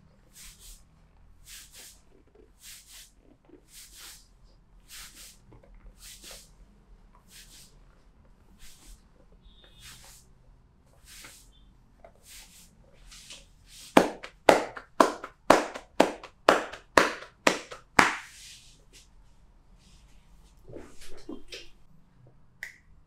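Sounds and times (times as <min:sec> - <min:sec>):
hands rubbing on skin: 0:01.4 - 0:04.2, 0:06.0 - 0:06.5, 0:07.3 - 0:07.7, 0:08.6 - 0:09.0, 0:12.2 - 0:19.1
hands slapping a back: 0:13.8 - 0:18.4.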